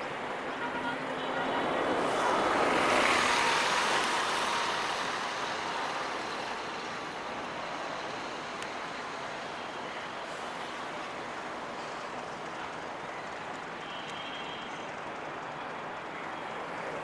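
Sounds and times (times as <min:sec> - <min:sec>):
diesel locomotive passing: 0:01.6 - 0:09.5.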